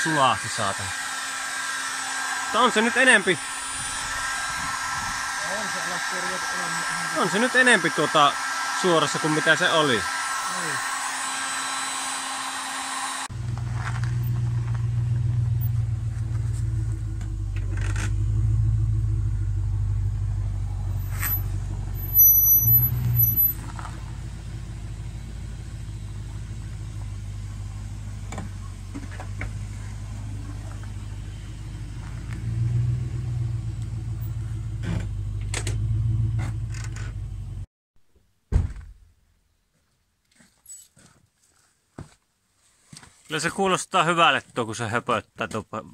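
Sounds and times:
engine burbling at idle: 13.4s - 37.6s.

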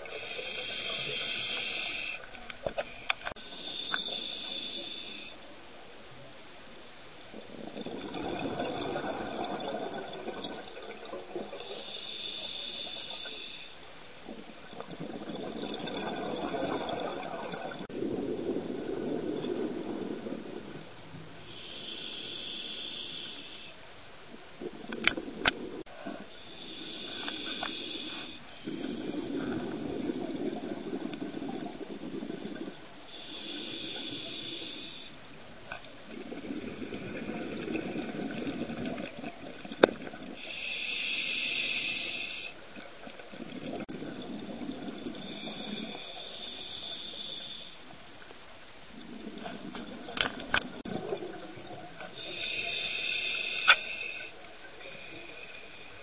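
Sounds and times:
hissing regulator inhale: 0.0s - 5.4s, 11.6s - 13.8s, 21.5s - 23.8s, 26.1s - 29.9s, 33.1s - 35.2s, 40.4s - 42.6s, 45.1s - 47.8s, 52.0s - 56.0s
rush of exhaled bubbles: 7.4s - 11.9s, 14.3s - 20.9s, 28.6s - 32.9s, 36.0s - 40.5s, 43.0s - 46.2s.

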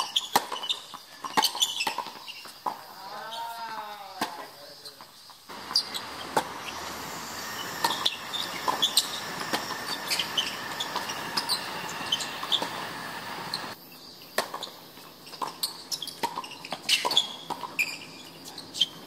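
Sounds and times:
ball bouncing on hard court: 5.5s - 7.0s
rackets striking tennis ball: 5.5s - 13.8s
steady background hum: 5.5s - 13.8s.

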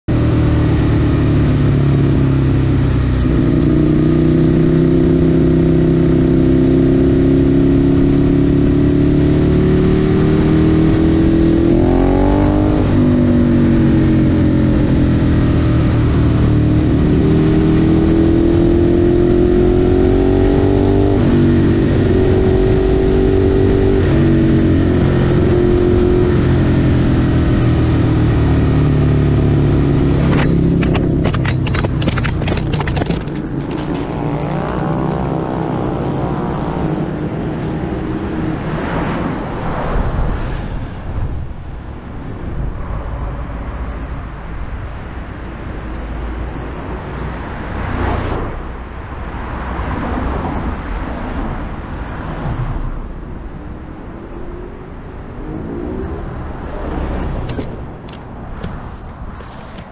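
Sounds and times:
road noise: 0.0s - 59.9s
wind noise: 0.1s - 59.9s
motorcycle engine pulling hard: 8.5s - 36.3s.

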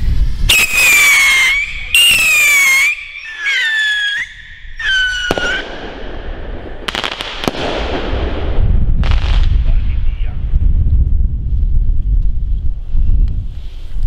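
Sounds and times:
firework rocket whistling: 0.0s - 8.3s
firework cracks: 0.4s - 9.8s.

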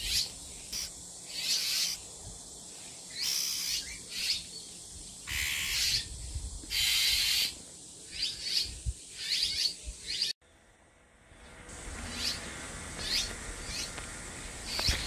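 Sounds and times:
bird harsh scolding calls: 0.0s - 2.0s, 3.1s - 4.5s, 5.2s - 6.1s, 6.7s - 10.3s.

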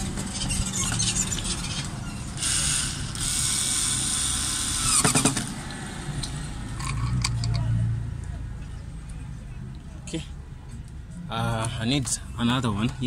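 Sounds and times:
electric screwdriver motor: 2.4s - 5.3s.

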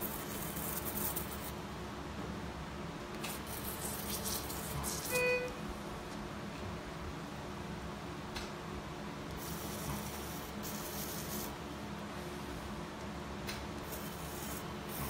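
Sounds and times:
equipment hum: 0.0s - 15.0s
short electronic beep: 5.1s - 5.6s.

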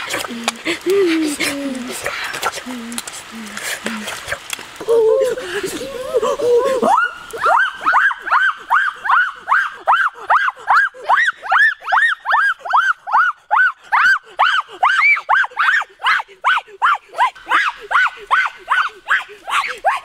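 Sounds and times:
boy yelping shrieks: 4.8s - 20.0s.

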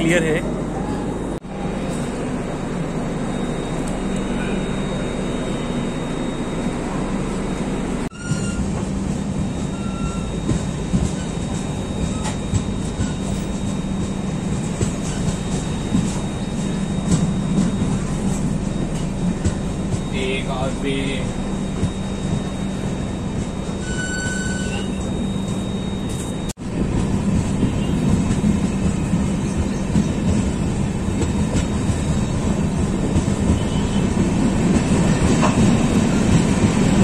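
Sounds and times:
train rumbling on track: 0.0s - 37.0s
train clicks and rattles: 8.1s - 37.0s.

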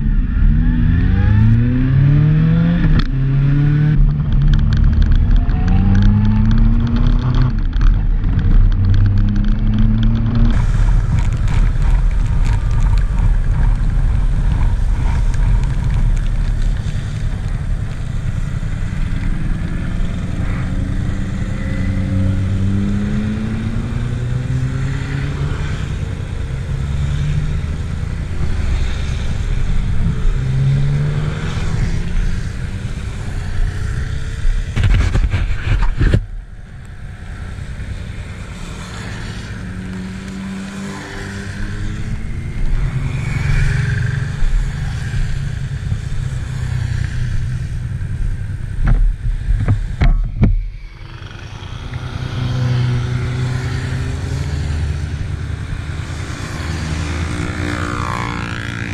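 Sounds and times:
motorcycle engine accelerating: 0.0s - 58.9s
wind noise on microphone: 0.0s - 58.9s.

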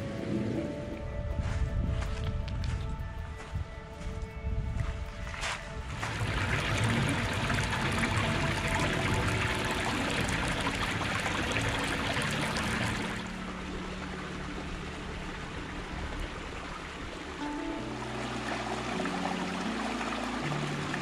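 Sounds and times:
bottle filling with water underwater: 6.0s - 13.4s.

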